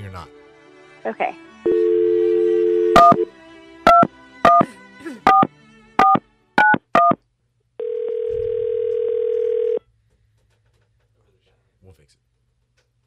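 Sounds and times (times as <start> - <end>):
telephone dial tone: 1.7 - 3.3, 7.8 - 9.8.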